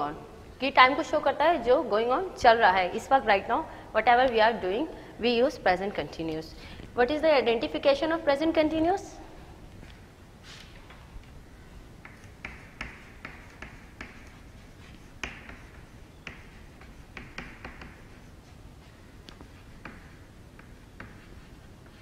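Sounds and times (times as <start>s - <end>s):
chalk tapping and scratching on chalkboard: 12.0s - 22.0s.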